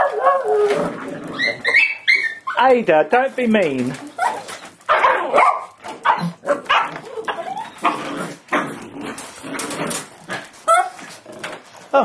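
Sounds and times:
small dogs barking: 4.2 - 8.0.

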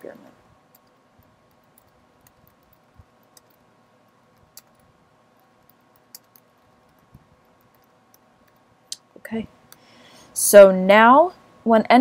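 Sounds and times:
typing on computer keyboard: 0.7 - 3.6, 4.3 - 8.6.

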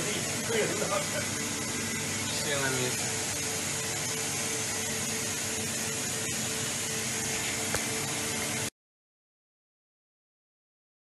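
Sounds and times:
coolant spray hiss: 0.0 - 8.7
machine hum: 0.0 - 8.7.

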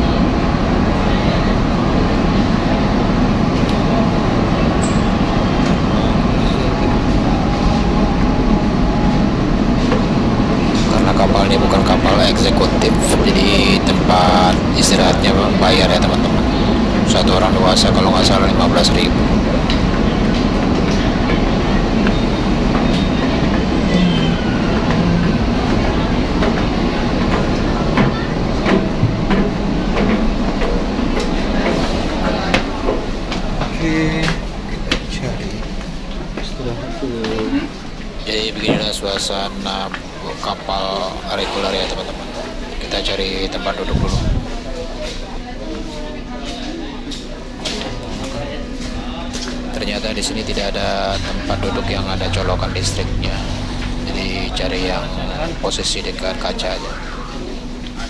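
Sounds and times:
loud engine rumble: 0.0 - 58.0
footsteps on metal stairs: 26.4 - 36.6.

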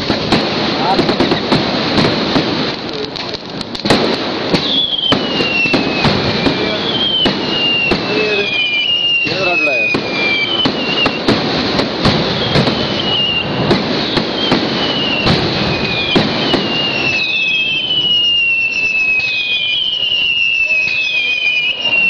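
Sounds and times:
fireworks bangs and crackling: 0.0 - 22.0
firework whistle falling in pitch: 4.6 - 11.3, 12.2 - 22.0.

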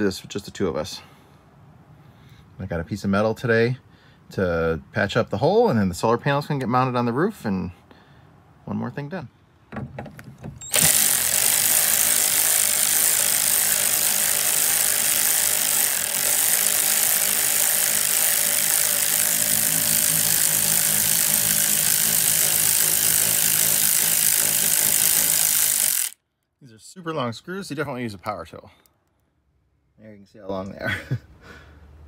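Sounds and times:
power tool spinning a socket: 10.6 - 26.2.

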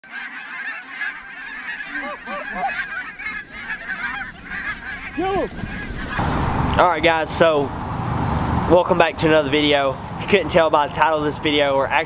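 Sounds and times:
flock of geese calling: 0.0 - 6.3
loud low goose honks: 0.0 - 7.0.

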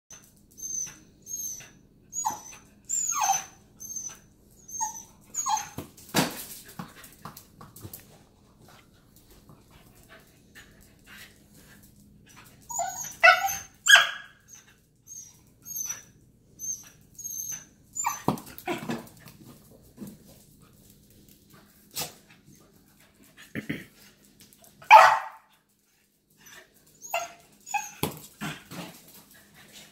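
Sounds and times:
dog yipping and whining: 0.1 - 5.8, 12.3 - 19.0, 24.9 - 25.4, 26.4 - 28.1
dog barking: 13.3 - 14.3, 24.9 - 25.5.

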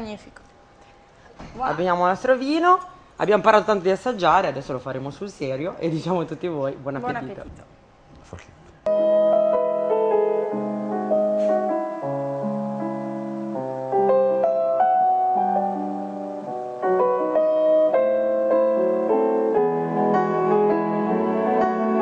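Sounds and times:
piano music: 8.9 - 22.0.

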